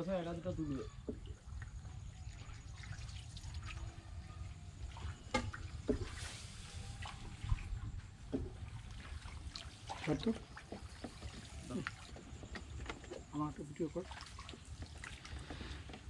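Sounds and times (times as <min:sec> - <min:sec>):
water trickling and sloshing: 0:00.0 - 0:16.0
sharp splashes or knocks: 0:04.9 - 0:13.3.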